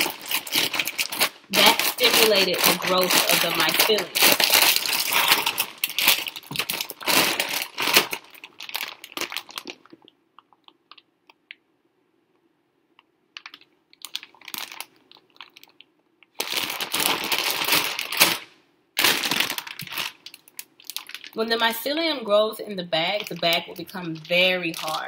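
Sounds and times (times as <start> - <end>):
grain rustling and crunching: 0.0 - 10.0, 23.1 - 25.0
plastic bag crinkling: 0.0 - 11.0, 13.4 - 25.0.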